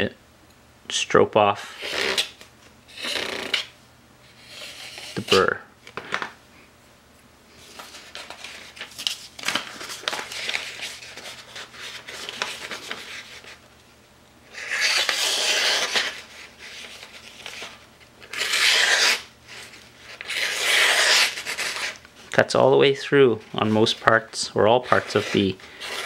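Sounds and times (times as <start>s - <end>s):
paper rustling and scratching: 4.4s - 6.3s, 7.6s - 13.6s, 14.6s - 22.0s, 23.4s - 26.0s
knife slicing through newspaper: 14.6s - 17.0s, 18.3s - 19.3s, 20.2s - 22.0s.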